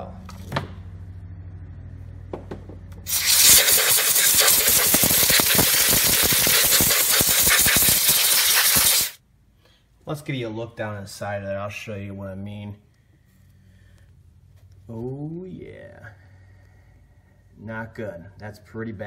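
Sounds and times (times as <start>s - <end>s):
compressed air hissing from nozzle: 3.1s - 9.2s.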